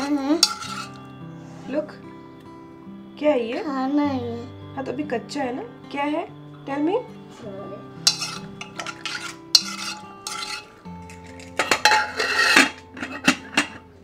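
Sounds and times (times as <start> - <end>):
metal lid scraping and clattering: 0.0 - 1.0, 8.1 - 14.0
sharp clicks of pot handles: 11.2 - 13.8.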